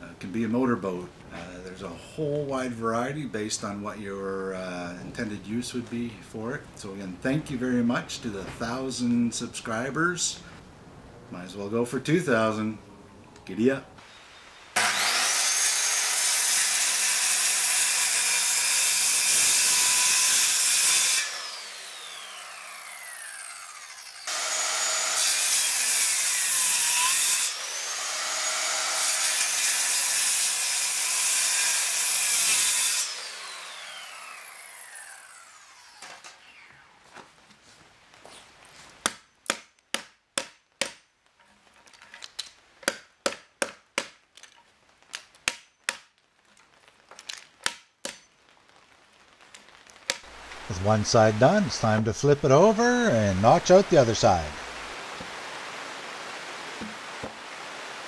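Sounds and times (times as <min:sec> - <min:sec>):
circular saw cutting wood: 0:14.7 - 0:37.0, 0:50.6 - 0:54.9.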